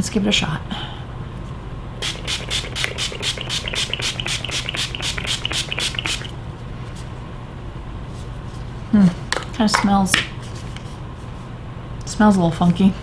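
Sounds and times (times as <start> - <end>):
mist spray bottle spritzing: 2.0 - 6.4.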